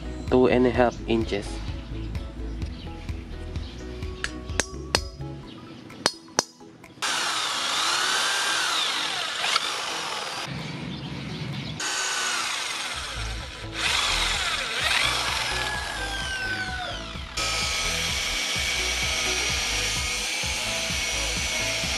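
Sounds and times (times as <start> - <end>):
electric drill boring through metal: 7.0 - 10.5, 11.8 - 21.9.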